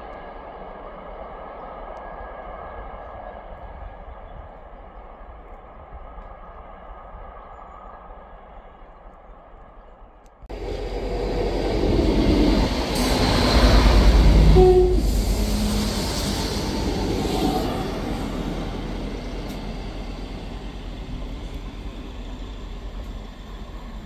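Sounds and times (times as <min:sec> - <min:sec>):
train passing: 0:10.5 - 0:24.0
brief steady note: 0:14.4 - 0:15.3.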